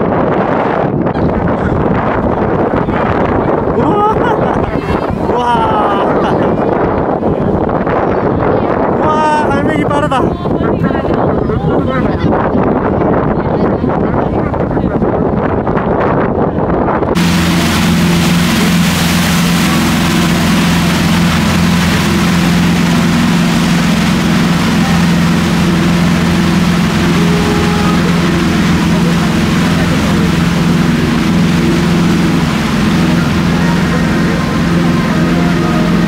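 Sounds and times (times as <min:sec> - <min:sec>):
propeller wake rushing: 0:00.0 - 0:36.0
wind: 0:00.0 - 0:36.0
ship engine droning: 0:00.6 - 0:07.9, 0:17.2 - 0:36.0.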